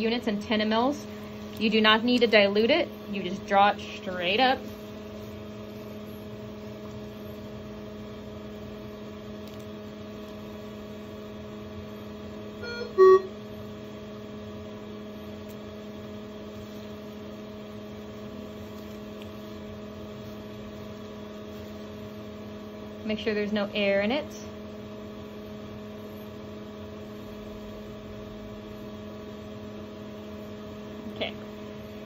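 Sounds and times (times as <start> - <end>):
electrical hum from medical equipment: 0.0 - 32.0
loud two-part tone: 12.6 - 13.4.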